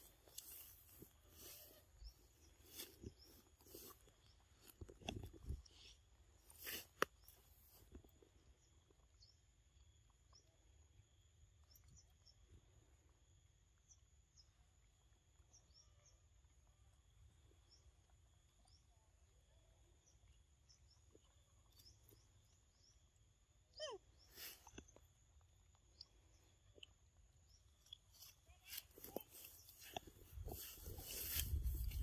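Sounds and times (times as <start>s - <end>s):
faint bird chirps: 13.8s - 25.2s.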